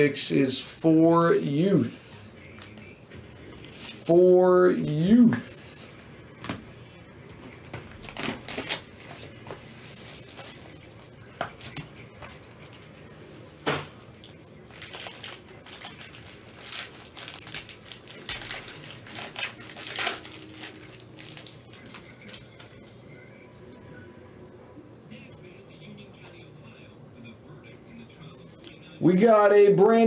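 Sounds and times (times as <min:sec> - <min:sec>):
plastic shrink wrap crinkling and tearing: 0:07.9 - 0:13.0, 0:14.6 - 0:22.7.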